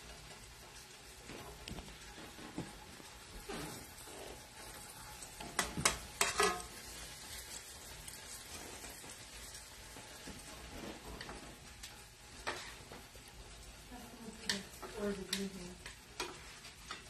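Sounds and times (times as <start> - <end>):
steaks sizzling in hot oil: 0.0 - 17.0
tongs clacking against pan: 4.6 - 9.5, 11.1 - 13.3, 14.3 - 17.0.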